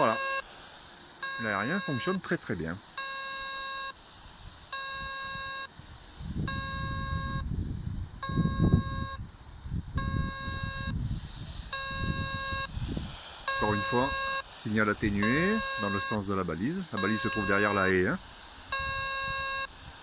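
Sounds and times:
buzzy beeping tone: 0:00.0 - 0:00.5, 0:01.2 - 0:04.0, 0:04.7 - 0:05.7, 0:06.5 - 0:07.5, 0:08.2 - 0:09.2, 0:10.0 - 0:11.0, 0:11.7 - 0:12.7, 0:13.5 - 0:19.7
low rumbling microphone noise: 0:04.2 - 0:17.4.

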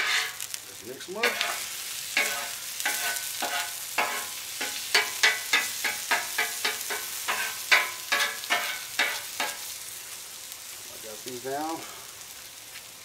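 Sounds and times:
metal spatula scraping griddle: 0:00.0 - 0:00.5, 0:01.2 - 0:09.7
eggs sizzling: 0:00.0 - 0:13.0.

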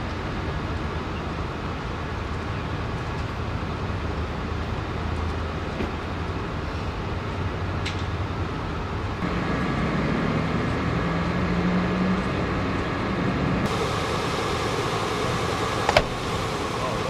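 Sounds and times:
hissy street noise: 0:00.0 - 0:17.0
vehicle engine idling: 0:08.8 - 0:17.0.

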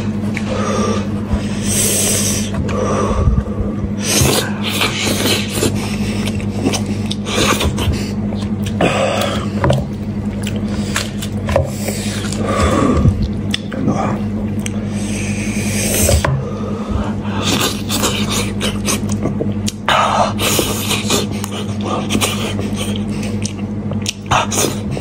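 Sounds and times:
low electrical hum: 0:00.0 - 0:25.0
mouth chewing: 0:04.1 - 0:14.8, 0:17.4 - 0:24.9.

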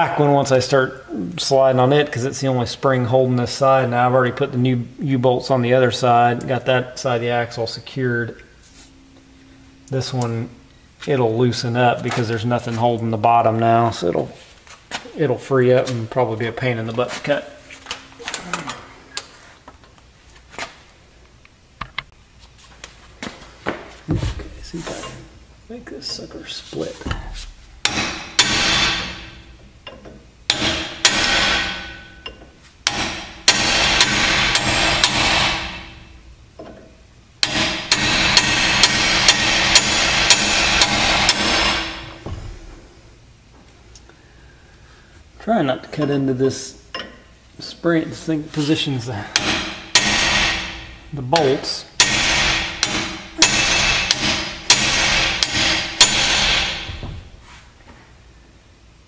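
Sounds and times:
steady hiss: 0:00.0 - 0:59.0
sharp metal knocks: 0:27.1 - 0:36.8, 0:37.4 - 0:42.7, 0:49.3 - 0:57.2
hammer striking chisel on metal: 0:27.8 - 0:36.0, 0:37.4 - 0:42.2, 0:49.3 - 0:56.9.

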